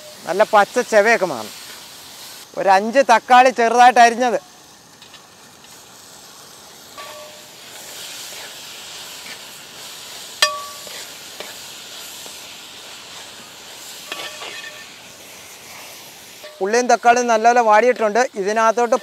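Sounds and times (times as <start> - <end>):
vegetables sizzling in oil: 0.0 - 19.0
metal ladle clinking on pot: 10.4 - 11.0.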